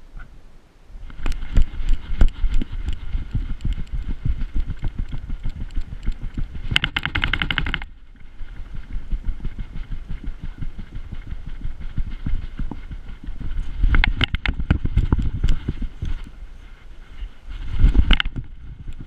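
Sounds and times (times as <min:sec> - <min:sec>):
rapid high-pitched rattling: 0:01.1 - 0:16.2
camera knocking low thuds: 0:08.8 - 0:16.2, 0:17.9 - 0:19.0.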